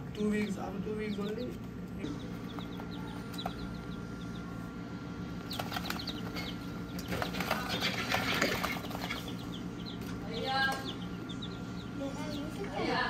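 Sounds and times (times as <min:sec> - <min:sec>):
chicks peeping: 0:00.0 - 0:13.0
steady low hum: 0:00.0 - 0:13.0.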